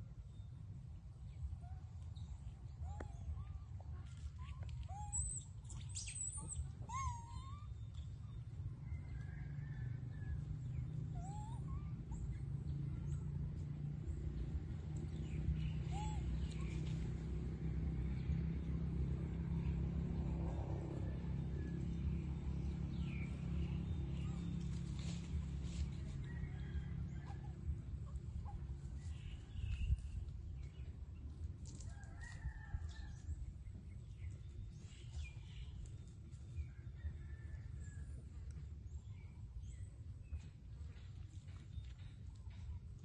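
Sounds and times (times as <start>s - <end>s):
monkeys squeaking calls: 4.9s - 7.6s.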